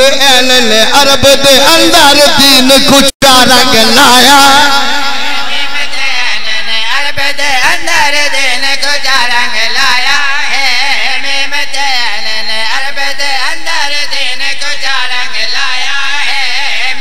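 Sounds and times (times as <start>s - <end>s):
men singing into a microphone: 3.5s - 17.0s.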